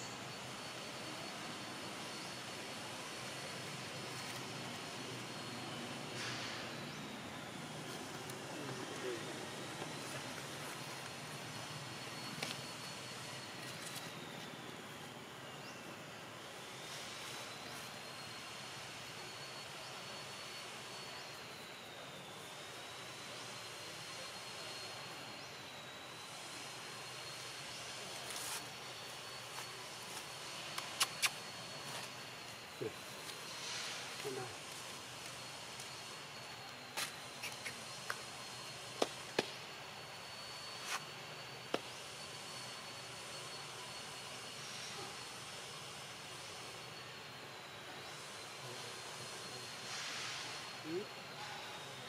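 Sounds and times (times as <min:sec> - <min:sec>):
high thin insect drone: 0:00.0 - 0:52.0
outdoor background hiss: 0:00.0 - 0:52.0
faint short chirps: 0:30.6 - 0:32.1
faint high-pitched tone: 0:39.6 - 0:52.0.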